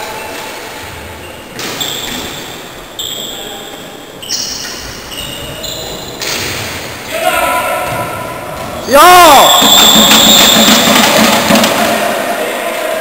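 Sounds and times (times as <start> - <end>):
shoes squeaking on hall floor: 0.2 - 7.0, 7.8 - 11.8
ball and sticks knocking: 9.6 - 12.1.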